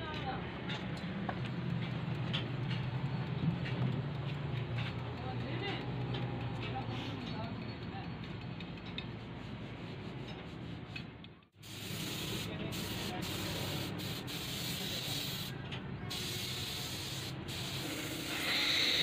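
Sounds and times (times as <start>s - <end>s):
sandpaper rubbing on metal: 9.0s - 11.0s, 16.1s - 19.0s.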